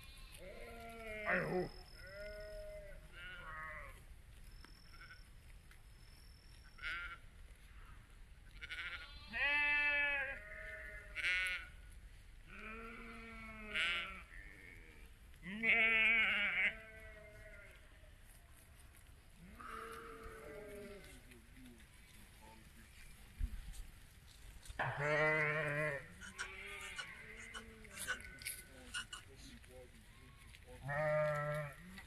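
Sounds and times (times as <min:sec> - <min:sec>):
sheep bleating: 0:00.0 - 0:04.0, 0:08.6 - 0:11.8, 0:12.5 - 0:17.8, 0:19.4 - 0:21.3, 0:24.8 - 0:29.3, 0:30.4 - 0:32.0.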